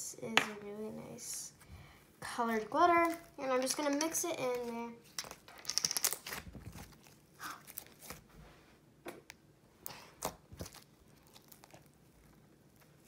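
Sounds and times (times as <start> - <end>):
slime kneaded by hand: 9.8 - 13.0.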